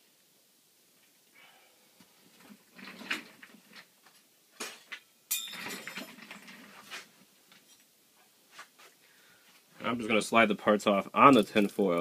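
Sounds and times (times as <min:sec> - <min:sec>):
objects clattering on workbench: 0:02.4 - 0:07.9
sharp ringing clink: 0:05.3 - 0:05.9.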